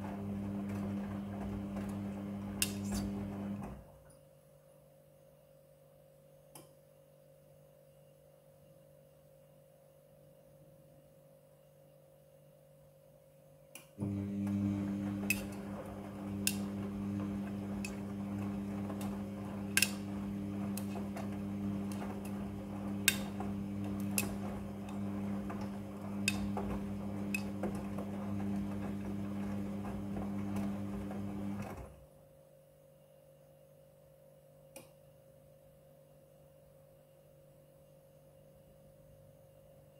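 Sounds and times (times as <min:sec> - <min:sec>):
laundry and water churning: 0:00.0 - 0:03.8, 0:14.0 - 0:31.9
washing machine drum motor hum: 0:00.0 - 0:03.9, 0:14.0 - 0:32.0.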